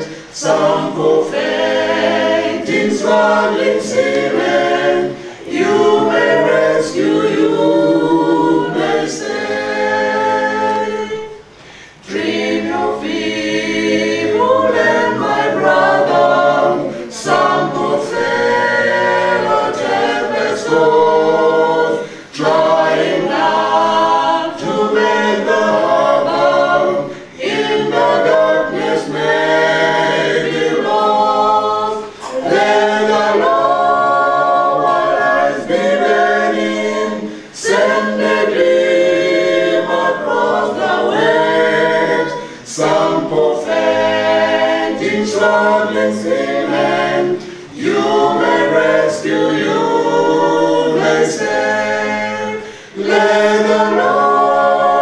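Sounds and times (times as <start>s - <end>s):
group singing a hymn a cappella: 0.0s - 55.0s.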